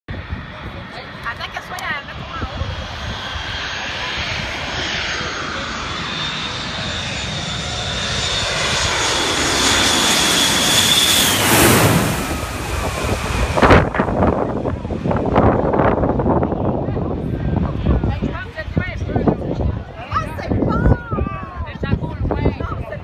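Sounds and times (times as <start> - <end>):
jet airliner passing overhead: 0.1 - 23.0
rough bursts of loud noise: 8.8 - 16.4.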